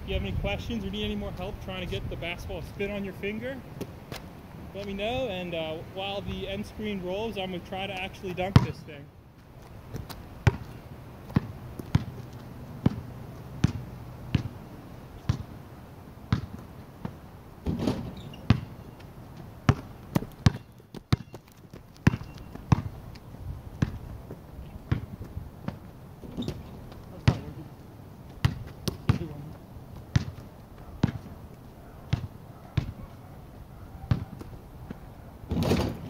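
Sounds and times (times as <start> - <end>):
basketball bouncing on asphalt: 7.9 - 8.8, 9.4 - 15.6, 16.2 - 27.6, 28.2 - 33.2, 34.0 - 35.8
ball thudding on hoop: 32.1 - 33.0, 34.1 - 34.5.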